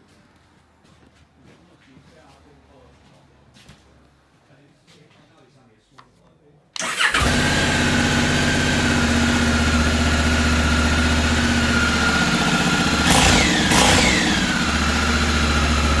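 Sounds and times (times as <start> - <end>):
motorcycle engine idling: 7.0 - 16.0.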